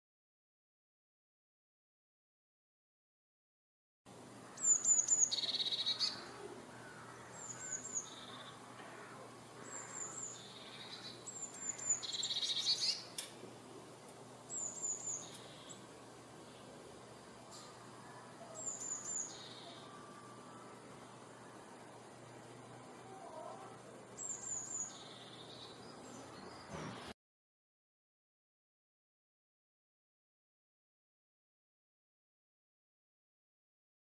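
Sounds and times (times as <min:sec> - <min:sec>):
bird singing: 0:04.4 - 0:13.2, 0:14.4 - 0:16.8, 0:17.5 - 0:27.2.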